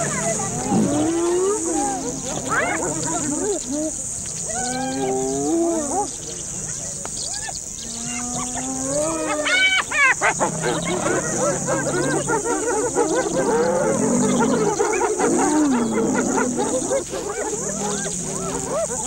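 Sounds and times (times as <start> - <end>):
wild animal calls: 8.1 - 19.0.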